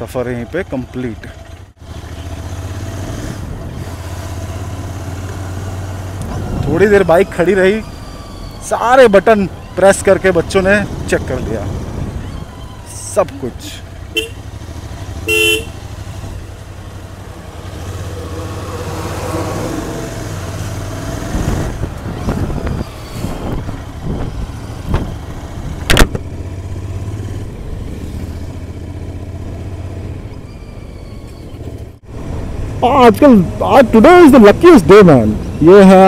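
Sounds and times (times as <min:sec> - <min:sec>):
motorcycle engine running: 0:00.0 - 0:30.4
vehicle horn toot: 0:14.1 - 0:14.6, 0:15.2 - 0:15.9.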